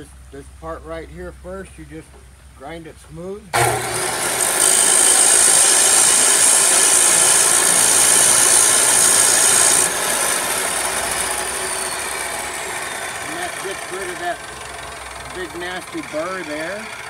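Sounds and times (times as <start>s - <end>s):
chop saw grinding metal: 3.6s - 17.0s
saw winding down whine: 3.6s - 17.0s.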